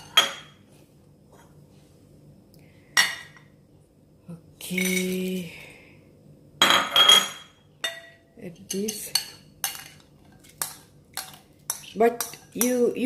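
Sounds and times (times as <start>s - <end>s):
ceramic bowls clinking: 0.0s - 0.6s, 6.6s - 13.0s.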